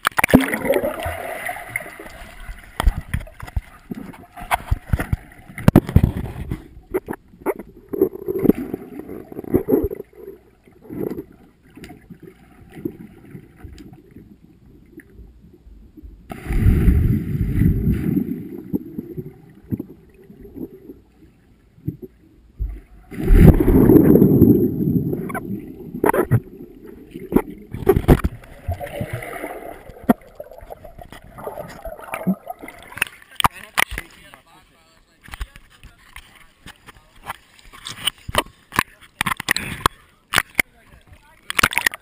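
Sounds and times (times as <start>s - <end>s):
swimmers plunging with bubbles: 0.0s - 15.0s, 16.1s - 21.2s, 21.8s - 33.9s
muffled underwater water movement: 0.0s - 42.0s.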